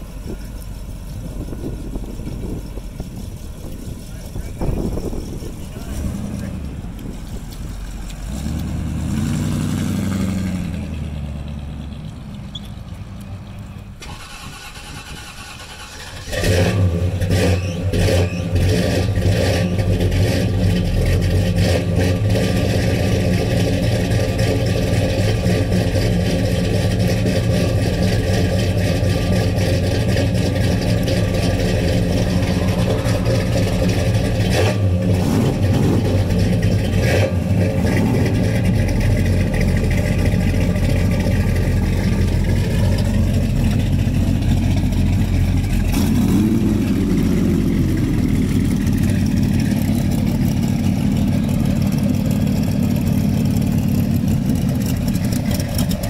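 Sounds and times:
car engine revving: 0:00.0 - 0:56.0
car engine starting and idling: 0:00.0 - 0:56.0.

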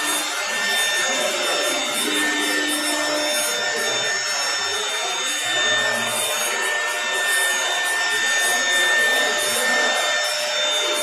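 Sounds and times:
cutter rasping in wood: 0:00.0 - 0:11.0
router spindle high whine: 0:00.0 - 0:11.0.

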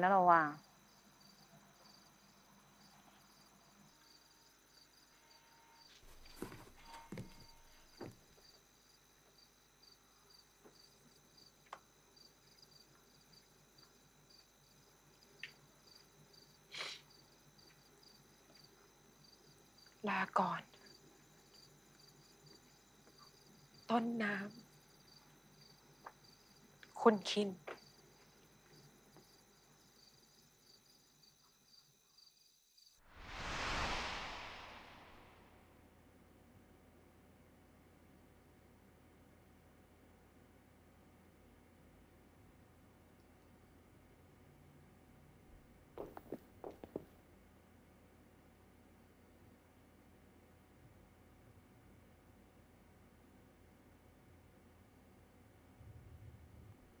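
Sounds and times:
crickets chirping: 0:00.2 - 0:35.5
high insect drone: 0:00.6 - 0:06.0, 0:06.8 - 0:34.2
transition whoosh: 0:33.1 - 0:35.7.

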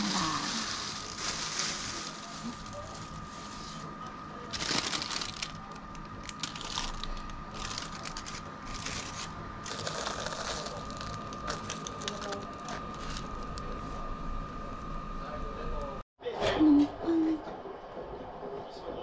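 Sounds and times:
plastic bag crinkling: 0:00.0 - 0:03.9, 0:04.5 - 0:13.7.

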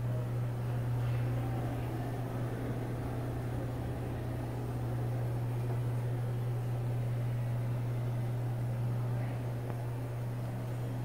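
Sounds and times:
exhaust fan airflow hiss: 0:00.0 - 0:11.0
low fan buzz: 0:00.0 - 0:11.0.

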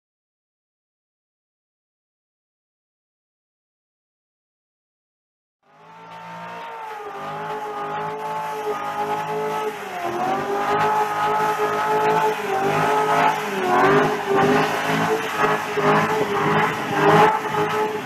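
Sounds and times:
car engine at high revs: 0:05.6 - 0:18.0.

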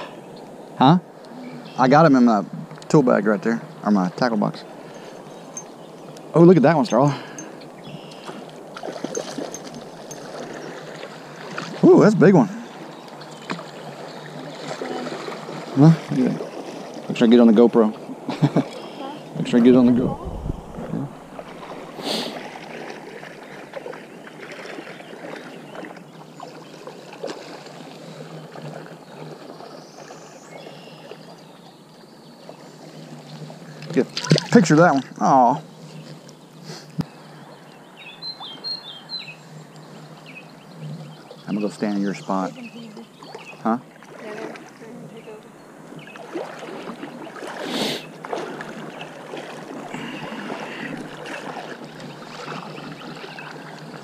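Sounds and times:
river water running and lapping: 0:00.0 - 0:54.0
small clicks and splashes: 0:08.1 - 0:11.8, 0:13.0 - 0:16.8, 0:22.5 - 0:27.9, 0:33.3 - 0:35.1.

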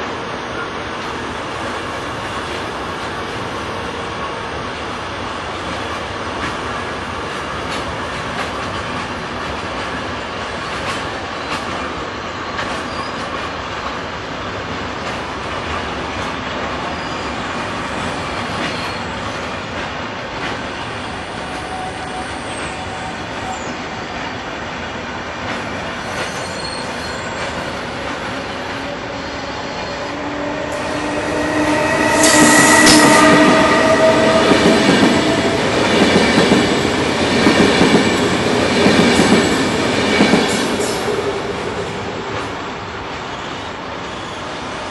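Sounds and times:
train wheels rumbling on rail: 0:00.0 - 0:44.9
high-pitched wheel squeal: 0:26.1 - 0:27.4, 0:28.6 - 0:36.4.

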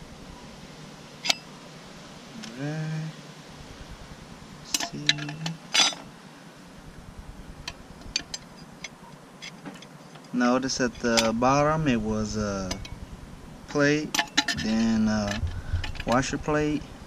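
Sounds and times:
man humming: 0:02.4 - 0:03.2, 0:04.7 - 0:05.6
metal plates clinking: 0:04.7 - 0:06.1, 0:14.1 - 0:16.3.

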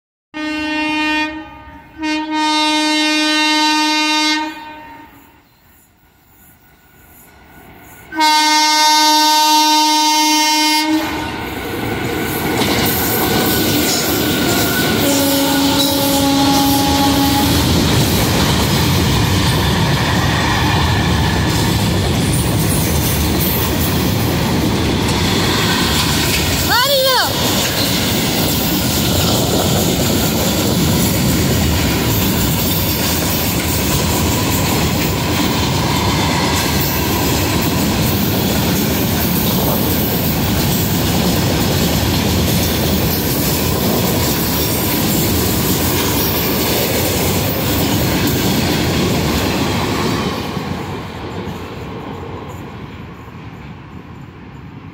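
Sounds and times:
locomotive air horn blasts: 0:00.4 - 0:05.4, 0:08.1 - 0:11.3, 0:15.0 - 0:17.7
train wheels on rails: 0:05.2 - 0:54.9.

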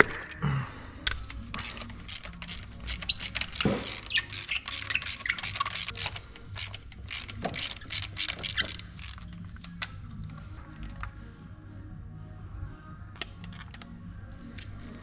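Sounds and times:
ratchet wrench clicking: 0:01.1 - 0:09.9.

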